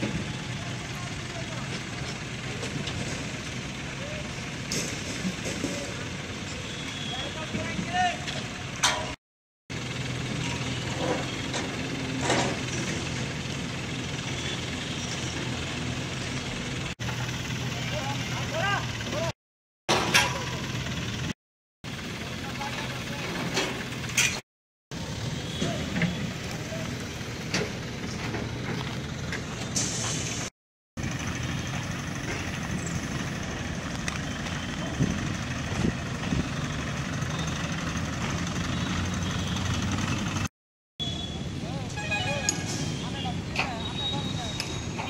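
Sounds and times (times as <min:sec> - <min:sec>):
crane engine idling: 0:00.0 - 0:04.7, 0:09.7 - 0:19.3, 0:20.4 - 0:24.2
diesel engines running: 0:00.0 - 0:45.0.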